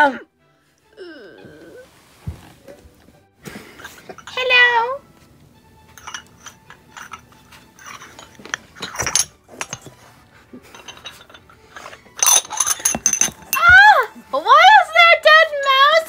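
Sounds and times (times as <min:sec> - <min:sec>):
plastic toy dishes clinking: 0:06.0 - 0:13.7.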